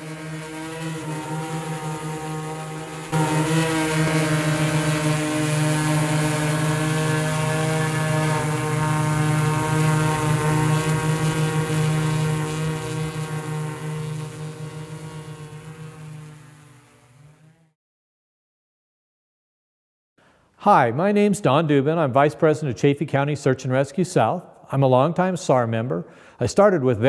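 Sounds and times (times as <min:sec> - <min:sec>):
drone propellers humming: 0:00.0 - 0:17.7.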